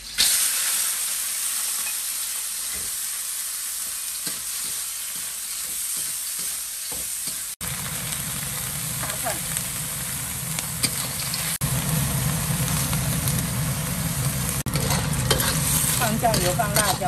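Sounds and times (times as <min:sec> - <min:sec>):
clams sizzling in hot oil: 0:00.0 - 0:17.0
metal spatula scraping: 0:14.6 - 0:17.0.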